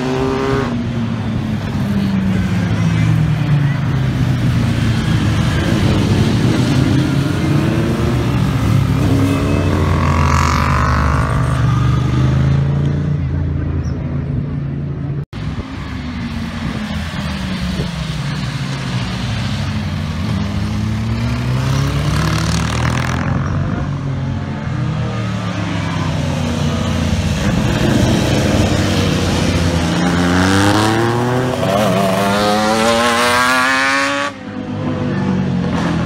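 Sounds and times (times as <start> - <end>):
motorcycle revving hard: 0.0 - 0.8, 5.0 - 12.7, 26.4 - 34.5
motorcycles passing by: 0.0 - 36.0.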